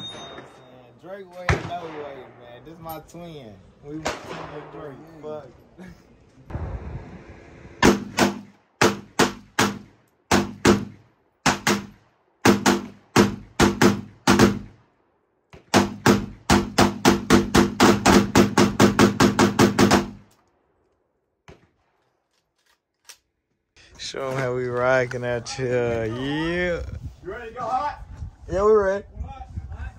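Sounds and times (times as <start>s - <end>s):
gunshots: 1.5s - 2.8s, 3.9s - 5.2s, 7.8s - 14.8s, 15.6s - 20.2s.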